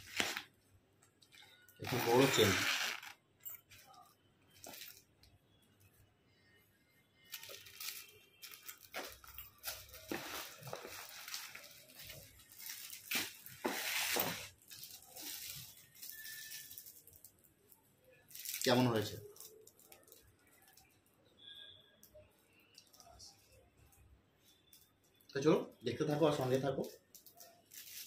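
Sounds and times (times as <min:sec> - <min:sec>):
plastic and cloth rustling: 0:00.0 - 0:00.6, 0:01.3 - 0:05.2, 0:07.2 - 0:17.3, 0:26.8 - 0:28.0.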